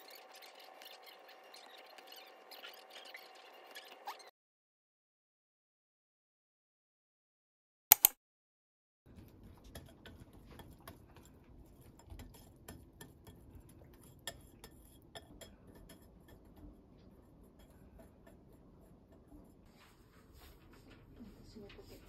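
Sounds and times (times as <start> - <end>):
whisk beating in glass bowl: 0.0 - 4.2, 9.1 - 19.7
sharp clicks: 7.9 - 8.2.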